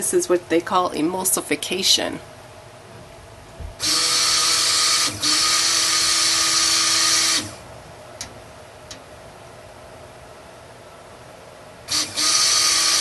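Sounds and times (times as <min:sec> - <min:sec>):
stick blender running: 0:03.8 - 0:07.6, 0:11.9 - 0:13.0.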